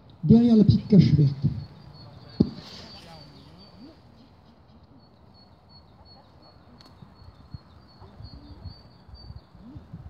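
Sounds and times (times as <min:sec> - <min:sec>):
thin high chirp: 0:01.6 - 0:04.1
wind on microphone: 0:06.9 - 0:10.0.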